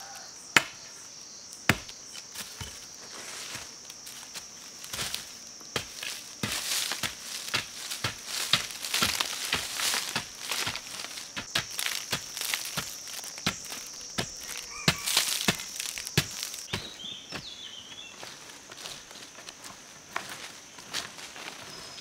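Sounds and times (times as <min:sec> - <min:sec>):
digging stick striking soil: 0:01.7 - 0:02.9, 0:04.8 - 0:17.6.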